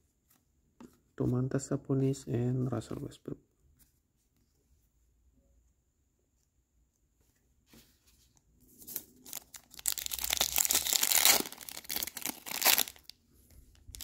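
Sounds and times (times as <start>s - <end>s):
wrapper tearing and crinkling: 8.9s - 13.1s.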